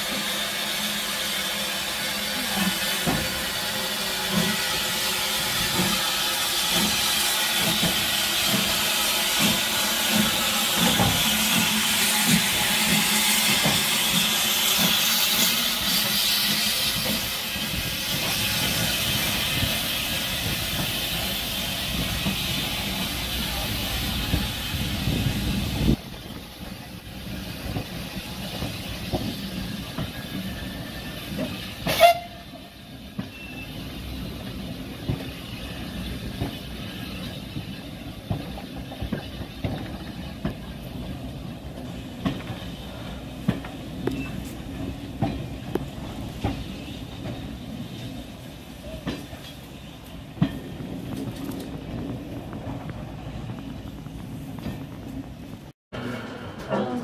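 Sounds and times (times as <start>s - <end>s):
steam locomotive hissing: 0.0s - 57.0s
carriages rumbling and clicking: 34.8s - 57.0s.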